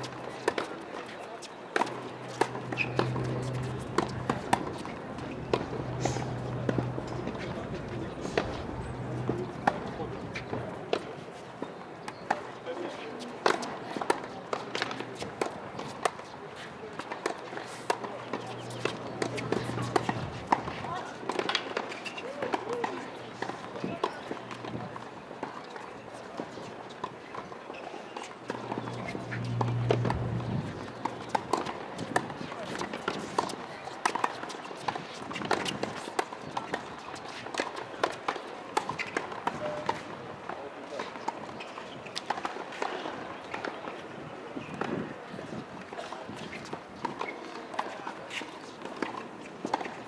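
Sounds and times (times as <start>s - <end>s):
tennis ball bouncing: 1.8s - 10.8s, 17.2s - 22.0s, 28.5s - 33.5s
racquets hitting tennis ball: 1.8s - 11.0s, 17.2s - 25.8s, 28.5s - 40.0s
shoe steps on court: 1.8s - 11.0s, 28.5s - 33.5s
low steady hum: 28.6s - 31.5s.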